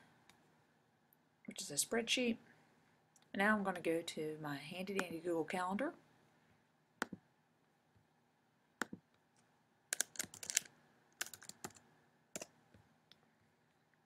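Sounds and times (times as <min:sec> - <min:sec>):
faint typing on computer keyboard: 0:09.9 - 0:13.2.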